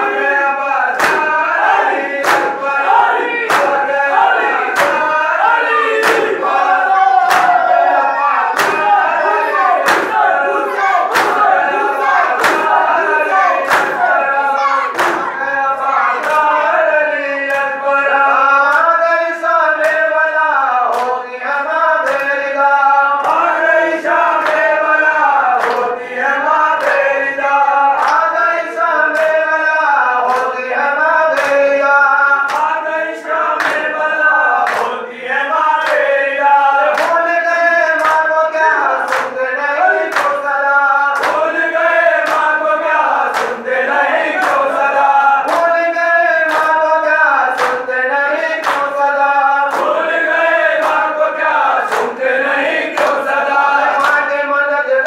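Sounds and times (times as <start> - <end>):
men chanting in unison: 0.0 - 55.0
hands slapping bare chests: 1.0 - 7.9, 8.5 - 14.2, 14.9 - 15.3, 25.6 - 25.9, 42.2 - 42.5.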